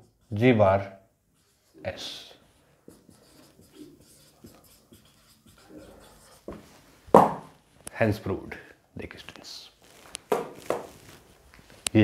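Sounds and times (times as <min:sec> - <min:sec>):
marker pen writing on whiteboard: 0:00.0 - 0:00.6, 0:01.3 - 0:07.5.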